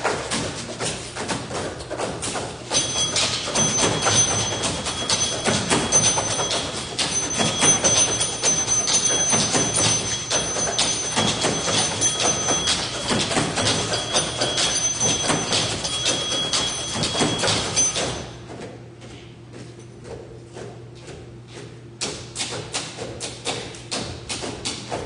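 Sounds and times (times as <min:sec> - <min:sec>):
thin high steady tones: 0:02.8 - 0:18.3.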